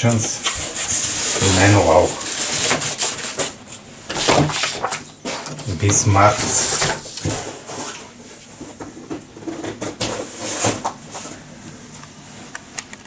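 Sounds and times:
paper rustling: 0.1s - 8.8s.

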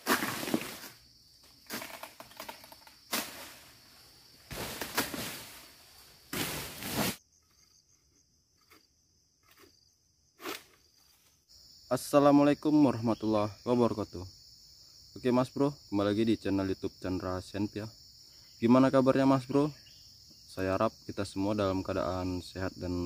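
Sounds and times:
sickle cutting palm fronds: 0.0s - 1.0s, 1.6s - 3.8s, 4.4s - 7.2s
high insect drone: 0.0s - 23.0s.

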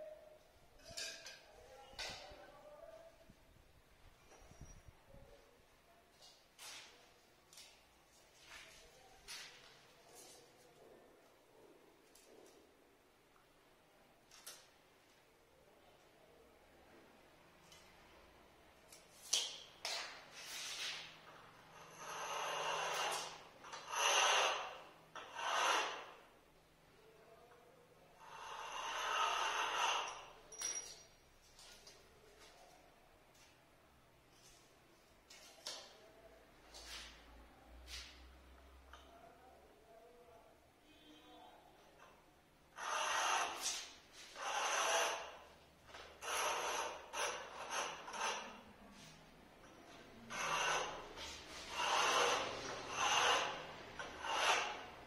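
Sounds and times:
strips scraping across granite: 21.7s - 26.2s, 28.4s - 31.0s, 42.7s - 55.0s.

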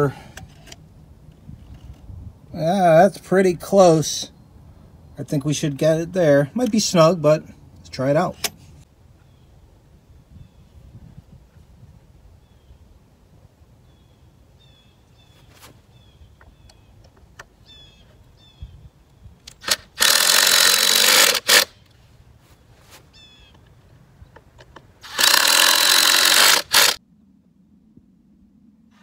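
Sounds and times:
cordless drill driving screws: 19.5s - 21.8s, 25.0s - 27.0s.

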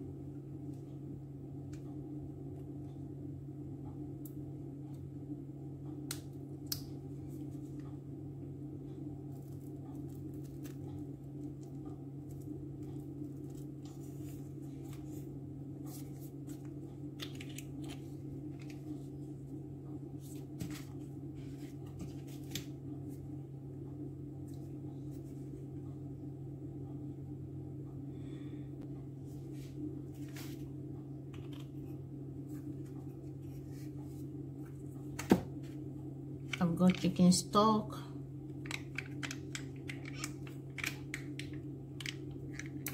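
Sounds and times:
steady low hum: 0.0s - 42.9s
soft handling noises: 9.3s - 23.3s, 24.4s - 25.9s, 29.2s - 37.1s.

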